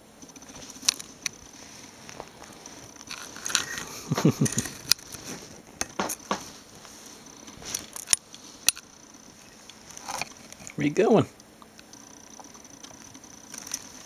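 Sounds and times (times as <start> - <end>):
rabbit rustling on bedding: 0.5 - 4.4, 5.0 - 11.3
sharp clicks: 11.4 - 14.0.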